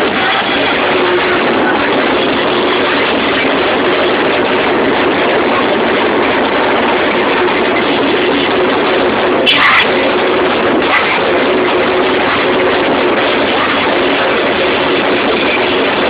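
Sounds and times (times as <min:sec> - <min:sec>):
distorted dance music over loudspeakers: 0:00.0 - 0:16.0.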